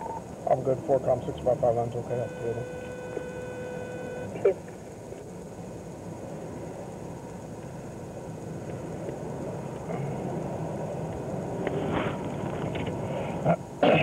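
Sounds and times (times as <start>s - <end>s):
highway traffic rumble: 0.0s - 14.0s.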